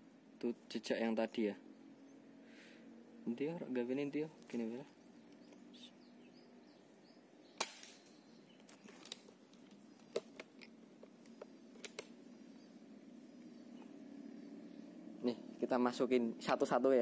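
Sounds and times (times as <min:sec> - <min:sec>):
air rifle shot: 0:07.6 - 0:08.2.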